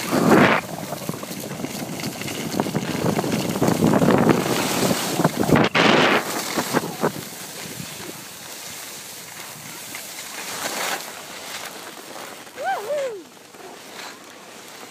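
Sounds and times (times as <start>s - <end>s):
wind buffeting microphone: 0.0s - 8.3s
skis sliding on packed snow: 0.0s - 14.9s.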